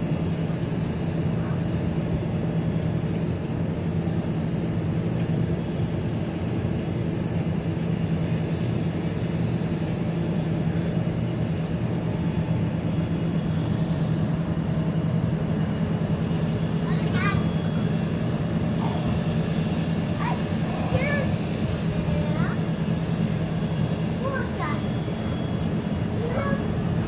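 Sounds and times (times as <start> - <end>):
low mechanical drone: 0.0 - 27.0.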